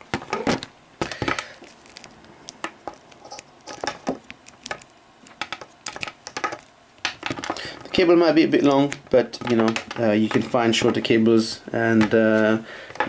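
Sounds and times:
cable rustling: 0.0 - 13.0
plastic plugs tapping desk: 3.7 - 7.6, 8.9 - 11.0.

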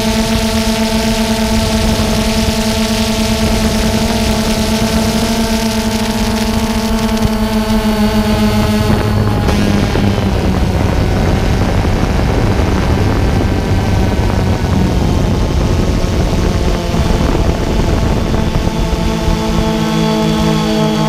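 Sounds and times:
drone motors and propellers: 0.0 - 21.0.

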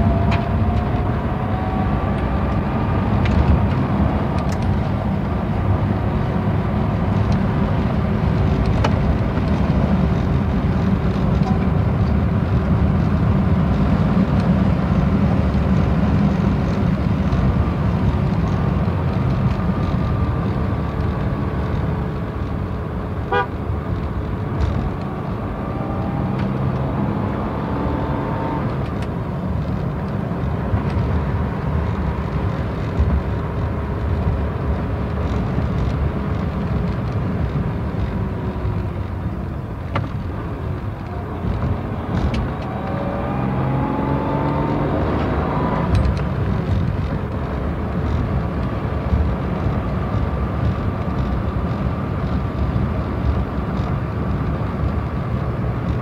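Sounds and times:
car engine and road drone: 0.0 - 56.0
car horn toot: 23.3 - 23.6.

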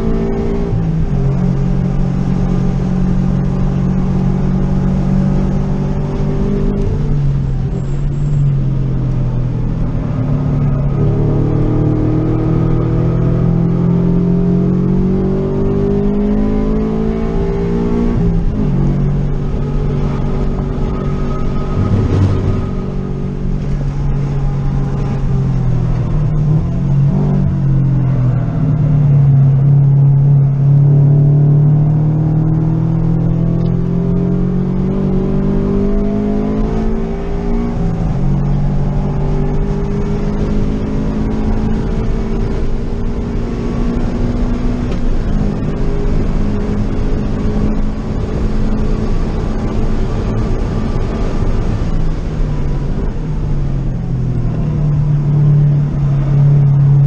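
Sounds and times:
car engine revving: 0.0 - 57.0
road and tyre noise: 0.0 - 57.0.

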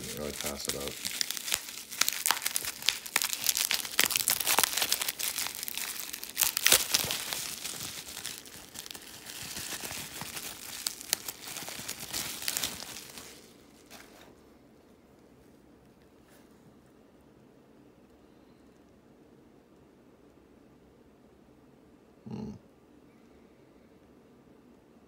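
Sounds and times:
bubble wrap crinkling: 0.0 - 14.4.

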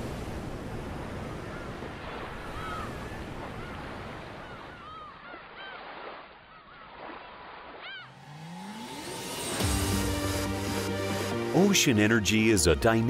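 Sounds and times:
ocean surf washing: 0.0 - 13.0
gulls crying: 1.3 - 7.0, 7.7 - 13.0.

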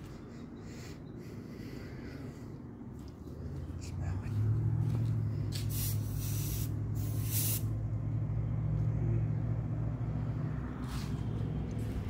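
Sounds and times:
steady low hum: 0.0 - 12.0
aerosol spray can hissing: 5.6 - 7.7.

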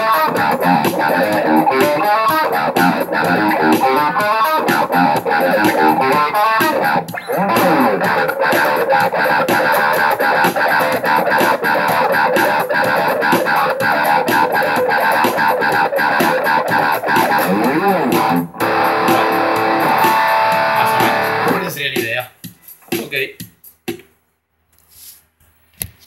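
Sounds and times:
electric guitar picked riff: 0.0 - 21.8.

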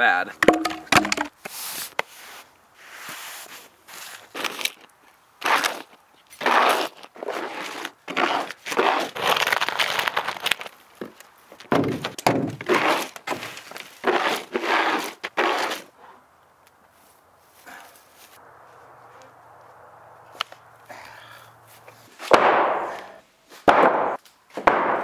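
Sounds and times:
dull thump: 0.4 - 1.3
dustpan scraping on concrete: 6.4 - 9.3, 12.7 - 15.9.

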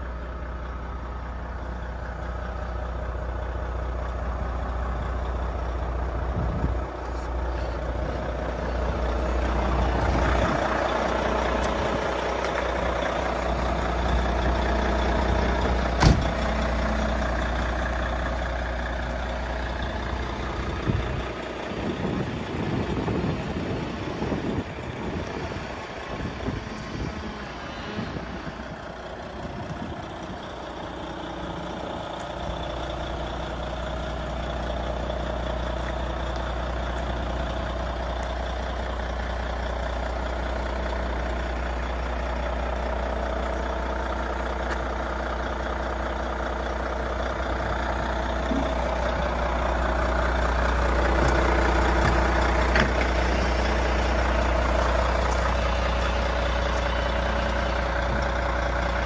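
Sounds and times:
diesel truck idling: 0.0 - 59.0.

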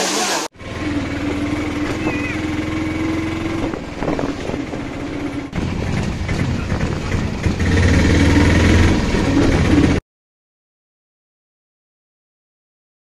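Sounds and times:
engine running: 0.0 - 10.0.

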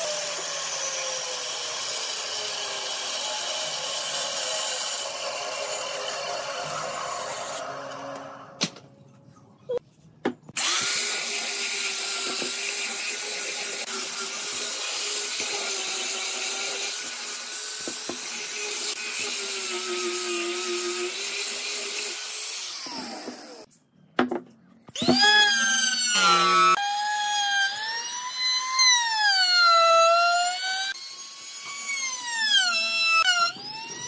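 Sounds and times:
band saw cutting wood: 0.0 - 8.3, 10.6 - 23.7, 25.0 - 34.0
angle grinder whining: 0.0 - 8.6, 10.6 - 23.7, 24.9 - 34.0.

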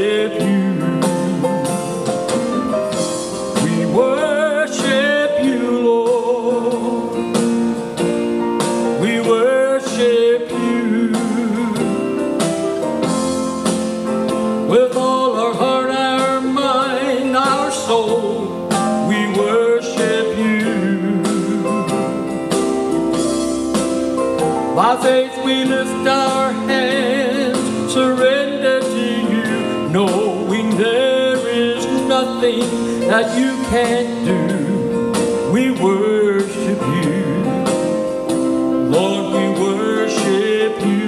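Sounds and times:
country gospel song: 0.0 - 41.0
guitar: 0.0 - 41.0.

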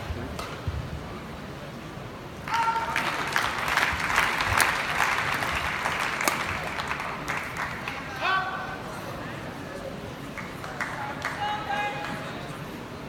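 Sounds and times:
crowd applauding: 2.4 - 8.3, 10.3 - 12.2.

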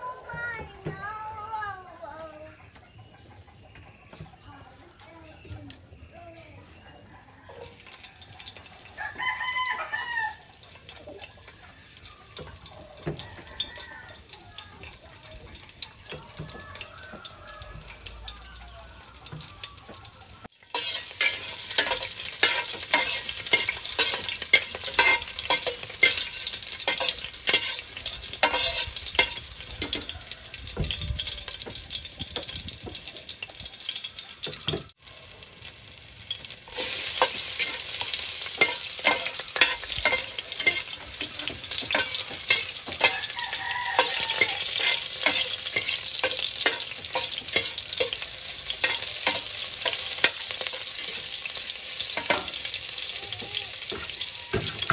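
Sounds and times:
garlic sizzling in hot oil: 7.5 - 54.9
onions frying: 7.6 - 54.9
metal spoon stirring: 20.6 - 30.6, 36.3 - 52.9.

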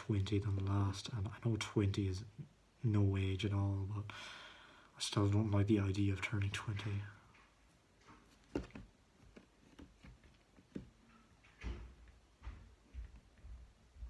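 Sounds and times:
soft low thumps: 11.6 - 14.0.

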